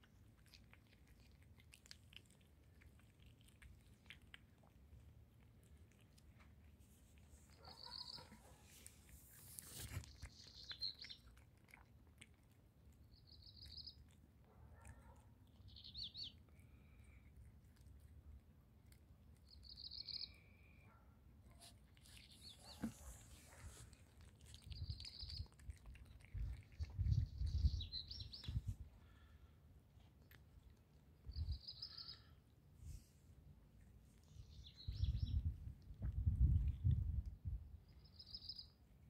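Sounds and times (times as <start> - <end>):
cat chewing: 0.0 - 20.7, 21.3 - 31.3
small bird chirping: 7.4 - 8.6, 9.3 - 11.8, 13.0 - 14.2, 15.4 - 17.3, 19.4 - 20.9, 21.5 - 29.3, 30.6 - 32.5, 34.2 - 38.8.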